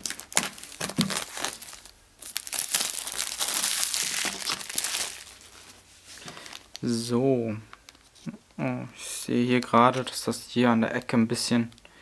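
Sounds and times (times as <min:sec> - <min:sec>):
plastic wrap crinkling: 0:00.0 - 0:07.1.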